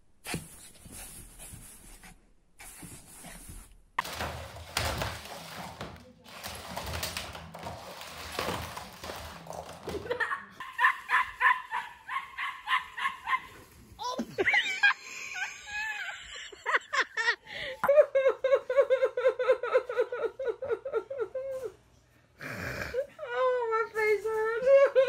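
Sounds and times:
indistinct household noise: 0.0s - 25.0s.

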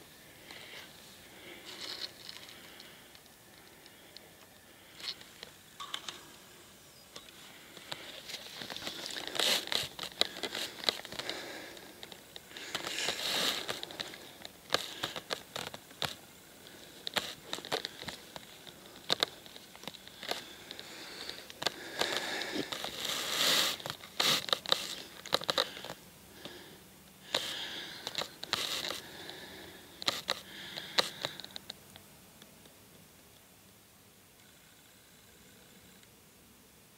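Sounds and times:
rustling and crinkling handling noise: 0.0s - 6.2s, 7.2s - 26.6s, 27.2s - 31.8s
small sharp clicks: 30.0s - 33.5s.

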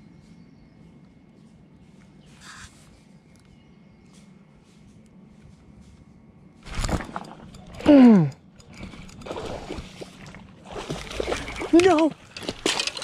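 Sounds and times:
water splashing: 8.7s - 13.0s.

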